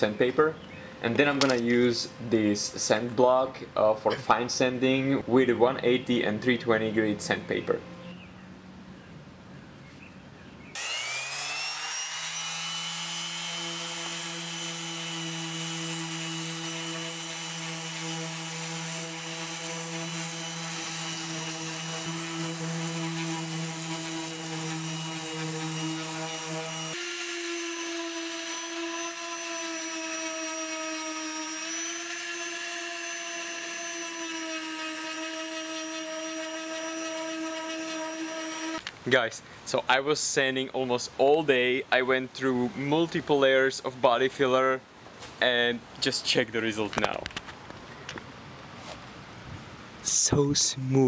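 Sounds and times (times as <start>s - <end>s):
orbital sander whining: 10.8s - 38.9s.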